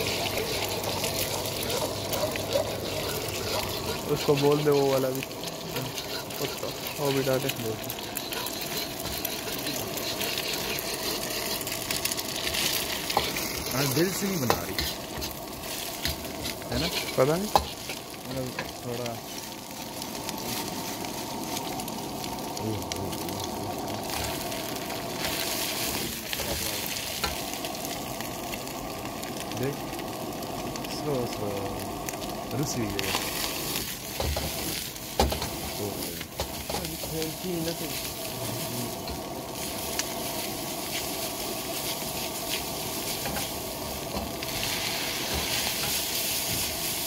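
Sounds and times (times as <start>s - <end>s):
metal ladle scraping a wok: 0.0s - 13.7s, 14.4s - 18.7s
vegetables sizzling in a wok: 0.0s - 47.0s.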